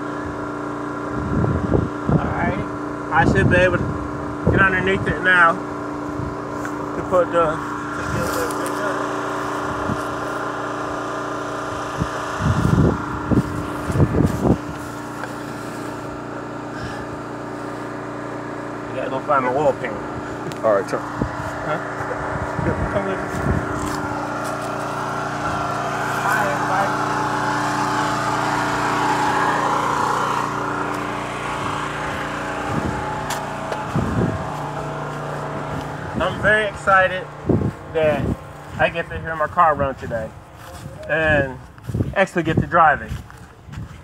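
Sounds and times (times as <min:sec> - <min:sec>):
steady engine hum: 0:00.0 - 0:44.0
short loud low rumbles: 0:20.0 - 0:43.8.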